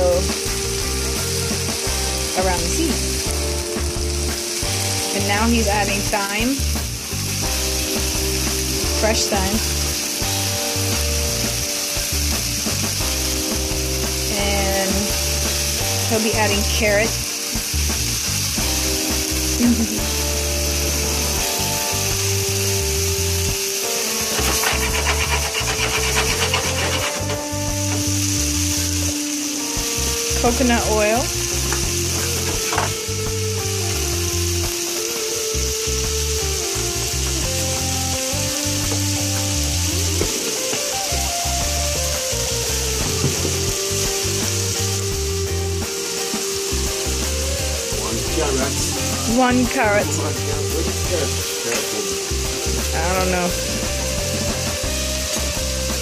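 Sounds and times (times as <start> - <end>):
background music: 0.0 - 56.0
food sizzling in a frying pan: 0.0 - 56.0.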